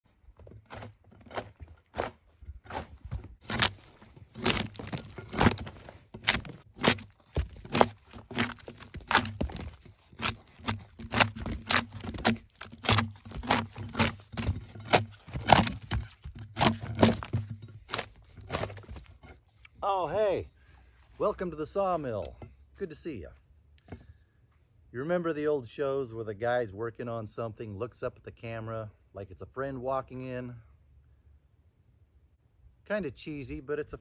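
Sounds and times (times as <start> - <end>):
bark cracking off log: 0.4 - 19.1.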